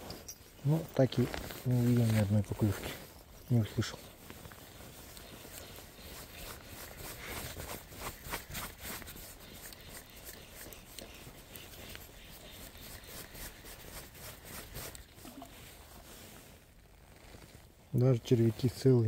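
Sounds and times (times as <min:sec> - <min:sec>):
fishing tackle clicks and rustles: 0:00.0 - 0:18.2.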